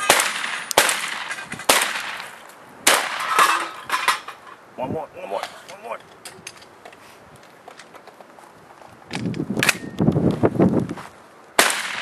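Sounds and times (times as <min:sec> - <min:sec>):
gunshot with echo: 0:00.0 - 0:02.2, 0:11.6 - 0:12.0
rustling noise: 0:05.5 - 0:11.6.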